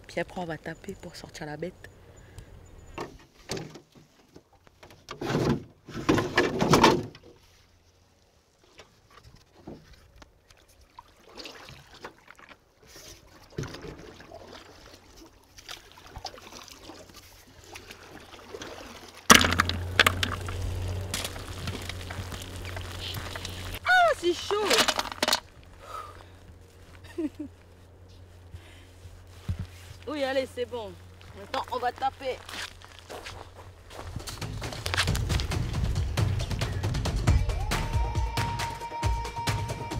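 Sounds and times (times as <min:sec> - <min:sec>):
water pouring from pot: 0:19.6 - 0:23.8.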